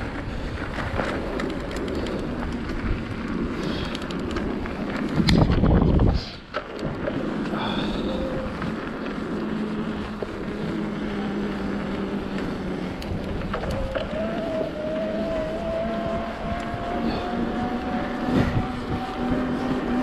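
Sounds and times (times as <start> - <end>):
bike tyres rumbling on trail: 0.0 - 20.0
low hum: 0.0 - 20.0
wind on microphone: 0.0 - 20.0
thin rising whine: 6.8 - 20.0.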